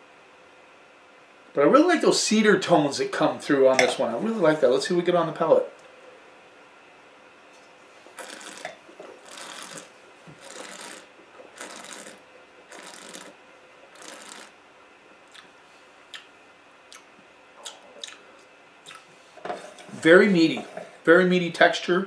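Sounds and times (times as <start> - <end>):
wine slurping: 8.2 - 13.4, 14.0 - 14.5.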